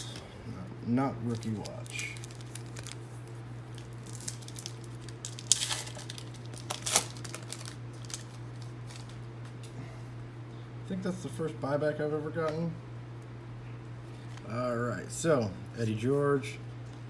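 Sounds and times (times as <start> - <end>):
card pack crinkling: 1.2 - 9.2
loud crinkly rustles: 1.2 - 9.6.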